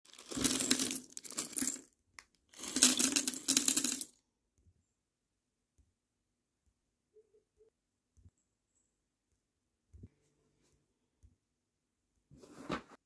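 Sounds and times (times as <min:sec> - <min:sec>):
plastic pieces clattering: 0:02.5 - 0:04.1.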